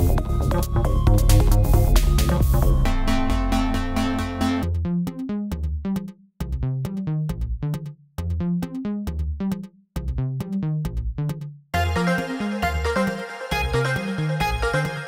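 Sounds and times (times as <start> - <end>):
electronic music: 0.0 - 5.6, 11.3 - 15.0
bass line: 0.0 - 15.0
short synth notes: 0.3 - 4.7.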